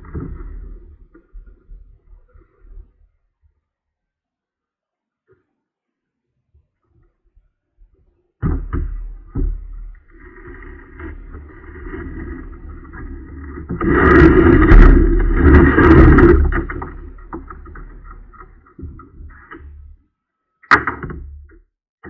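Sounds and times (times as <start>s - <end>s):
kayak hull scraping on concrete: 9.2s - 20.0s.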